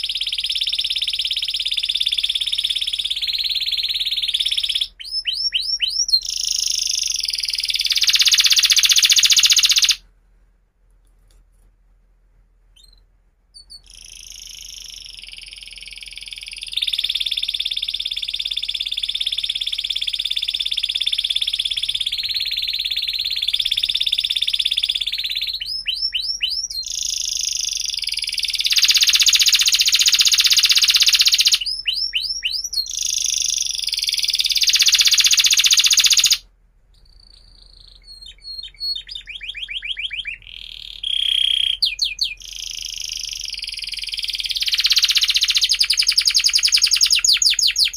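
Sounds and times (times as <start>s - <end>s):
canary singing trills: 0.0s - 10.0s, 12.8s - 47.9s.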